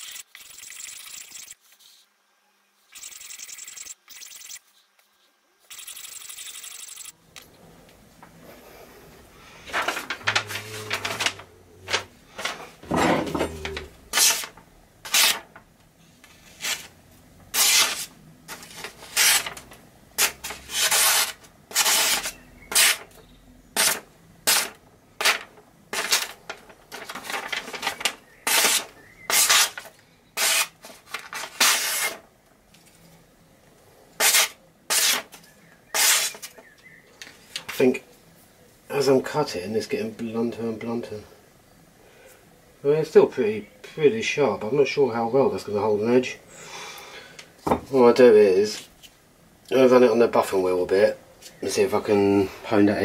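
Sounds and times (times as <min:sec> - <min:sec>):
knife slicing paper: 0:14.1 - 0:14.5, 0:15.1 - 0:15.5, 0:17.5 - 0:19.6, 0:20.2 - 0:23.1, 0:23.8 - 0:26.4, 0:27.0 - 0:32.2, 0:34.2 - 0:36.5.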